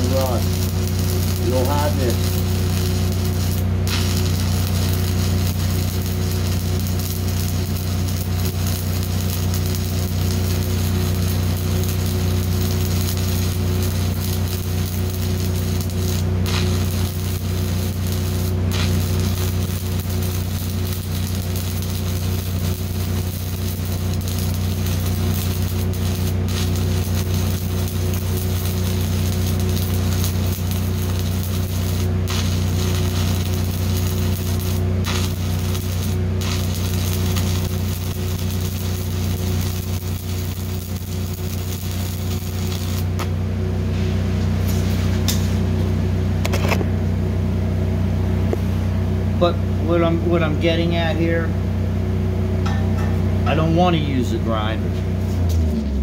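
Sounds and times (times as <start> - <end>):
welding arc hissing and crackling: 0.0 - 43.4, 44.5 - 45.6
low hum: 0.0 - 56.0.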